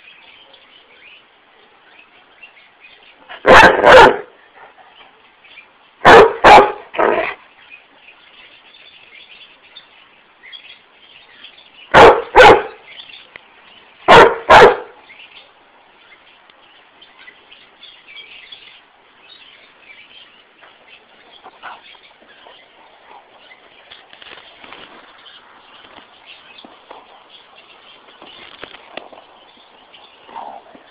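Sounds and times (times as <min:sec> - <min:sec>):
dog barking: 0:03.4 - 0:04.3, 0:06.0 - 0:07.3, 0:11.9 - 0:12.8, 0:14.1 - 0:15.0.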